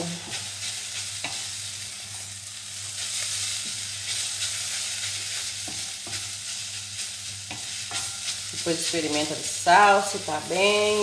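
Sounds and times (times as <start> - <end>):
chicken sizzling in a saucepan: 0.0 - 11.0
wooden spoon scraping a pan: 2.9 - 11.0.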